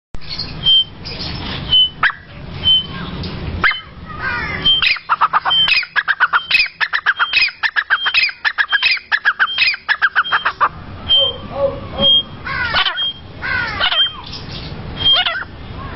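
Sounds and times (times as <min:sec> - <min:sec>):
francolin calling rising notes: 0:03.6 - 0:14.3.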